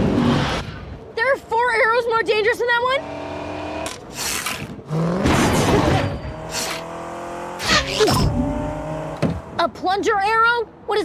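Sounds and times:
car engines running: 0.0 - 10.9
cars passing close: 4.7 - 10.0.

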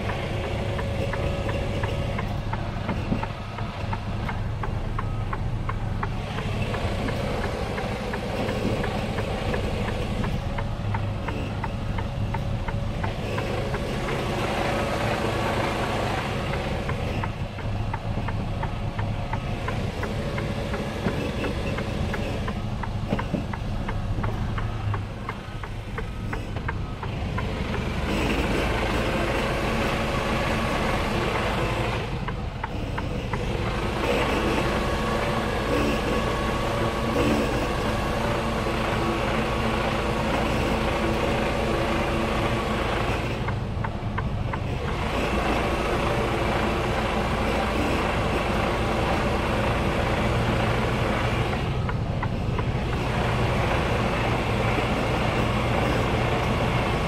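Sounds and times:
truck diesel engine running: 0.0 - 57.0.

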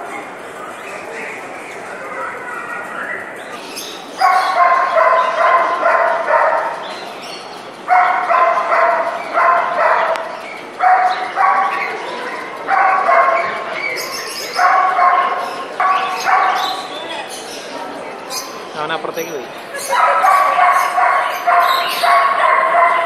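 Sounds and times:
small dog yapping: 4.2 - 6.8, 19.8 - 23.0.

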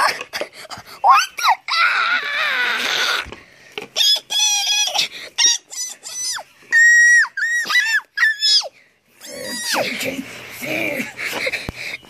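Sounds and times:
child squealing: 1.0 - 3.3, 4.0 - 9.9.

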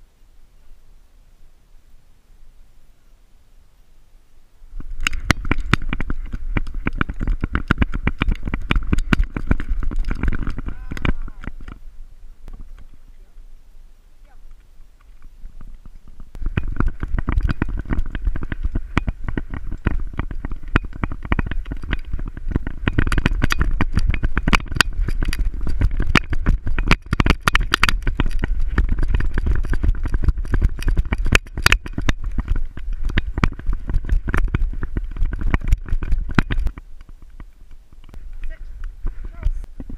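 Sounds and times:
wind buffeting microphone: 4.7 - 13.4, 14.5 - 39.9
camera knocking and rattling: 4.8 - 11.8, 15.0 - 38.2.

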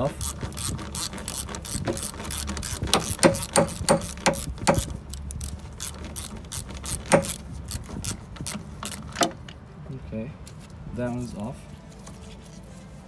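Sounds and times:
ratchet pawl clicking: 0.0 - 9.3.

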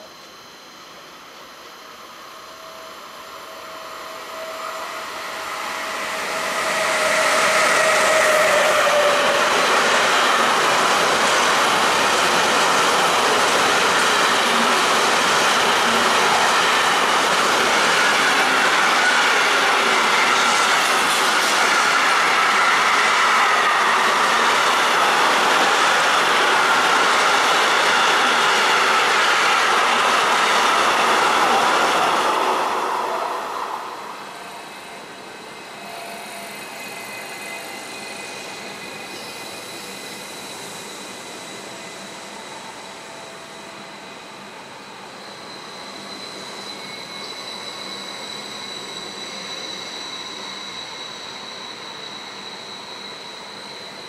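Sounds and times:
high wheel squeal: 2.4 - 54.0.

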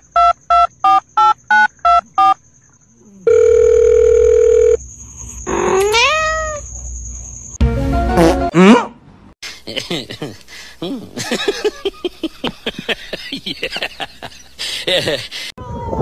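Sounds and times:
steady phone tone: 3.3 - 4.8
cat meowing: 5.7 - 6.6.

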